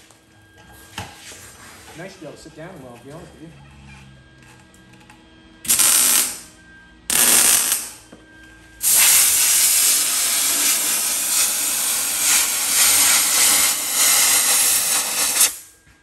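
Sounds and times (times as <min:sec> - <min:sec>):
compressed air hissing from blow gun: 0:08.8 - 0:15.7.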